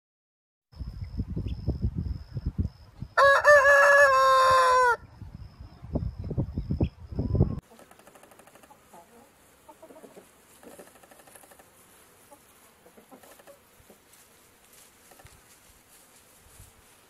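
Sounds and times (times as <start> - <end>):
chickens clucking: 7.4 - 14.2.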